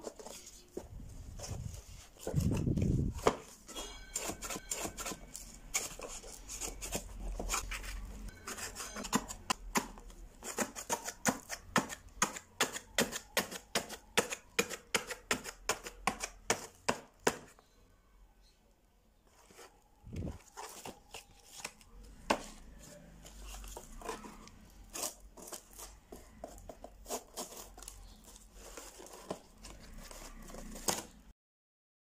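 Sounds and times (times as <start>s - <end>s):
paper and foil rustling: 22.7s - 31.3s.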